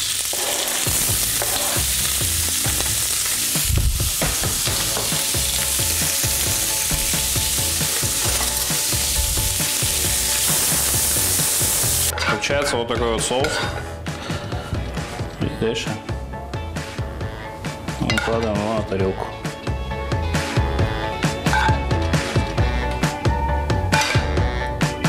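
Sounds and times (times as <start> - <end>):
food sizzling in frying pan: 0.0 - 12.1.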